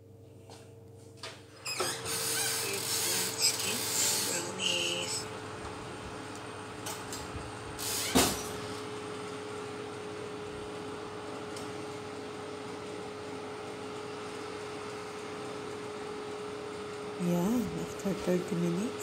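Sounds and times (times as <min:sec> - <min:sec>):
oven fan humming: 0:00.0 - 0:19.0
oven door opening: 0:01.6 - 0:04.4.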